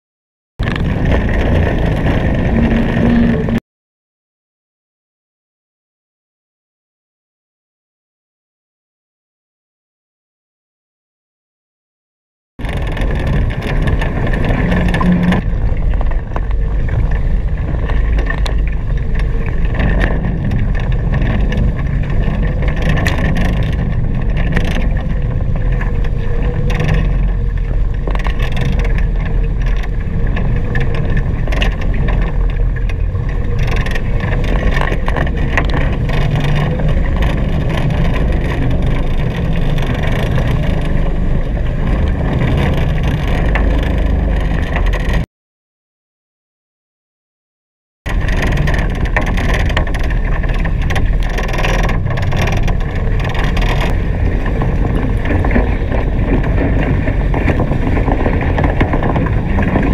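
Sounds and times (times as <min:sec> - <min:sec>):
wind buffeting microphone: 0:00.6 - 0:03.6, 0:12.6 - 0:45.2, 0:48.1 - 0:59.9
water rushing past hulls: 0:48.1 - 0:59.9.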